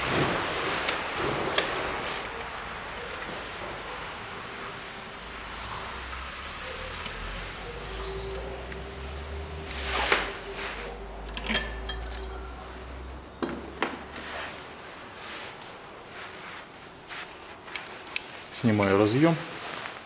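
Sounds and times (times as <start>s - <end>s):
metal tools clinking: 10.8s - 12.7s.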